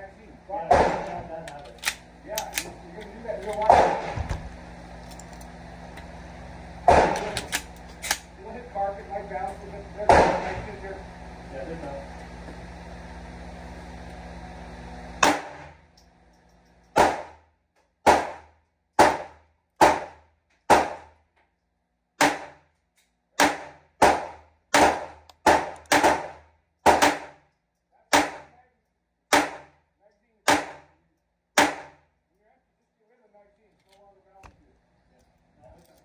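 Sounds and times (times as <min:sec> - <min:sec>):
pistol shots: 0:00.7 - 0:01.2, 0:03.6 - 0:04.2, 0:06.9 - 0:08.2, 0:15.2 - 0:15.7, 0:17.0 - 0:17.4, 0:18.0 - 0:21.1, 0:22.2 - 0:22.6, 0:23.4 - 0:27.4, 0:28.1 - 0:28.5, 0:29.3 - 0:29.7, 0:30.5 - 0:30.9, 0:31.6 - 0:32.0.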